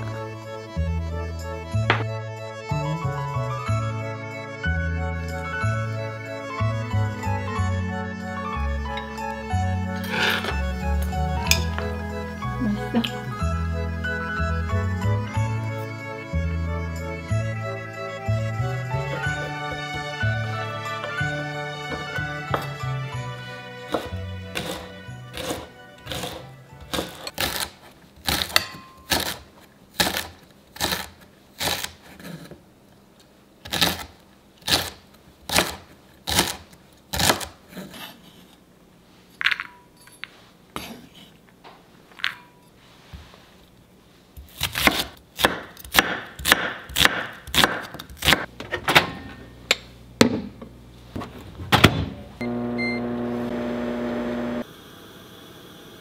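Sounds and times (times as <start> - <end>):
knife chopping on wooden board: 1.9 - 2.1, 23.9 - 29.4, 44.5 - 48.5
microwave oven humming: 48.5 - 56.0.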